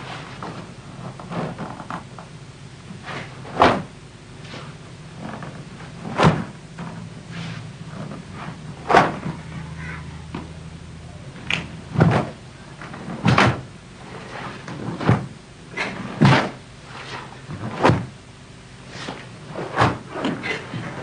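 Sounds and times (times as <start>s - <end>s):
footwork thuds on floor: 4.5s - 7.1s, 11.4s - 12.4s, 16.2s - 16.6s.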